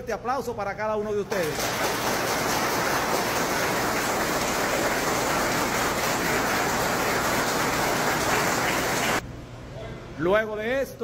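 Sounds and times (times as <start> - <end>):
crowd applause: 1.4 - 9.2.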